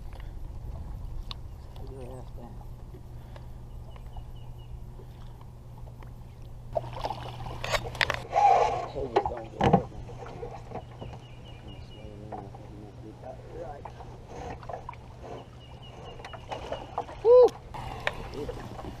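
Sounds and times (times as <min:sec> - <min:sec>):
steady low hum: 0:00.0 - 0:19.0
knocks and clatters on a boat: 0:09.0 - 0:11.3, 0:11.9 - 0:17.2.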